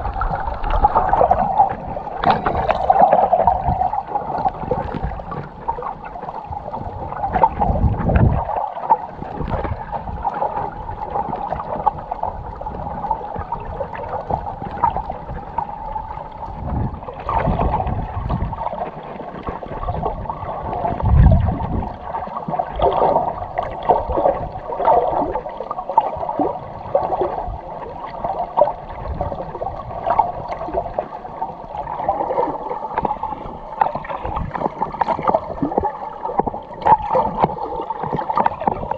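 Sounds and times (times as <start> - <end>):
low underwater thumps: 0.0 - 8.5, 9.2 - 18.8, 19.4 - 22.2, 31.9 - 38.9
water gurgling underwater: 0.0 - 38.9.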